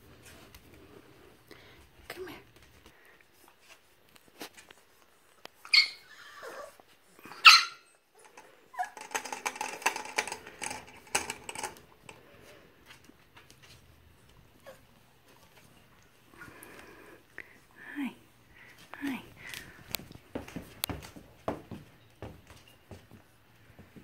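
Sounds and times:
puppy yipping: 5.6s - 6.7s, 7.3s - 8.0s, 8.7s - 9.1s.

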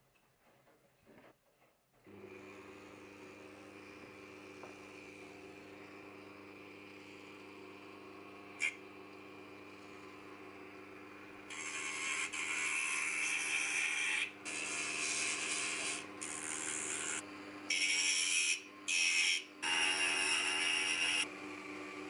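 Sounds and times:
rotary tool humming: 9.7s - 22.0s
sanding drum grinding wood: 11.6s - 17.2s.

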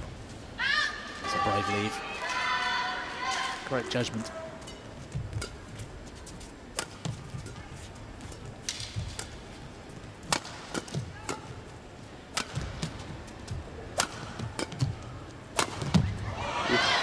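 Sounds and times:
racket hitting shuttlecock: 4.7s - 5.6s, 6.7s - 9.5s, 10.2s - 11.6s, 12.3s - 16.2s.

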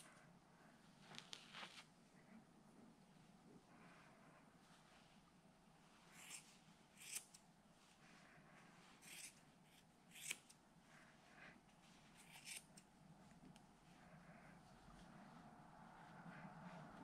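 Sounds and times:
scissors snipping wool: 6.2s - 7.4s, 9.0s - 10.6s, 12.2s - 12.9s.

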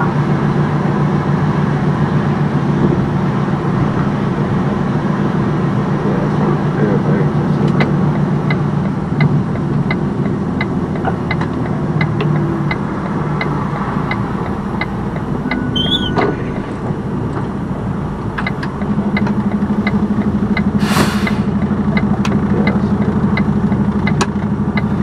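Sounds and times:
diesel truck engine idling: 0.0s - 25.0s
regular ticking: 7.8s - 20.8s
air hiss: 20.8s - 21.6s.

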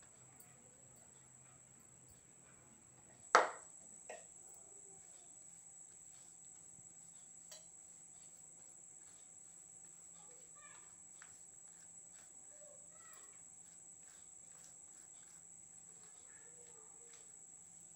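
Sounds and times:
sharp knock: 3.4s - 3.6s.

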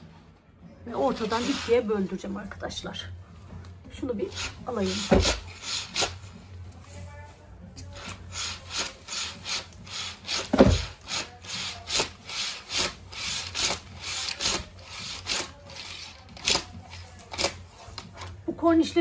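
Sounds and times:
curtain runners rasping along rail: 0.9s - 2.4s, 4.2s - 6.5s, 7.8s - 18.4s.

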